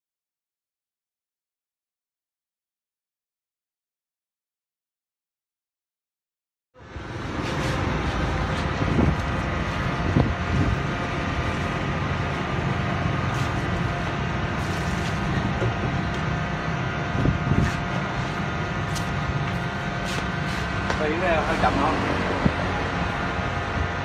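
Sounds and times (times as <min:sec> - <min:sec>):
electric motor and hydraulic pump: 0:06.9 - 0:24.0.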